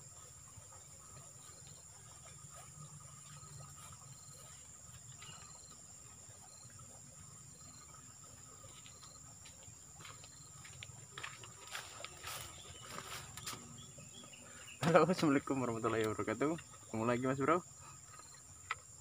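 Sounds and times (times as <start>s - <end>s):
insects droning: 0.0s - 19.0s
faint footsteps on dirt: 3.1s - 6.2s, 8.6s - 13.8s.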